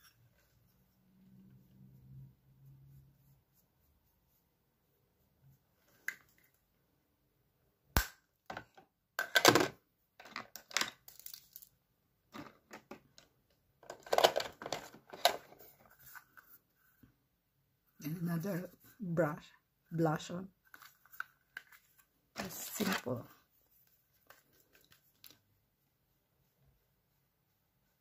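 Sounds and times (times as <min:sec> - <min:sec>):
makeup cases clicking and clattering: 0:08.5 - 0:11.4, 0:12.3 - 0:15.7.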